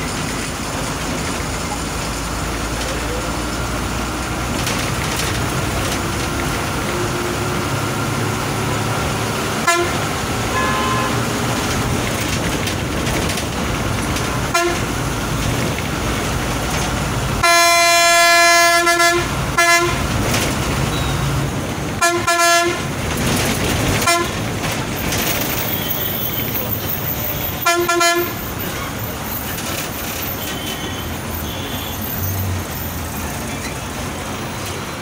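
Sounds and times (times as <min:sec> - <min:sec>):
bus engine and road hum: 0:00.0 - 0:35.0
vehicle horn: 0:09.6 - 0:11.4, 0:14.5 - 0:14.9, 0:17.4 - 0:20.0, 0:22.0 - 0:22.8, 0:24.0 - 0:24.4, 0:27.6 - 0:28.4, 0:30.5 - 0:32.1.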